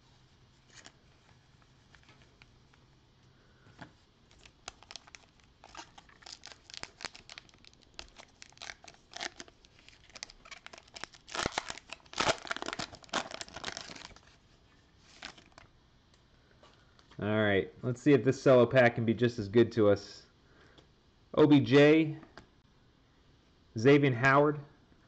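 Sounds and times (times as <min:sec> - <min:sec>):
plastic wrapper tearing and crinkling: 0:04.3 - 0:14.4, 0:15.1 - 0:15.6.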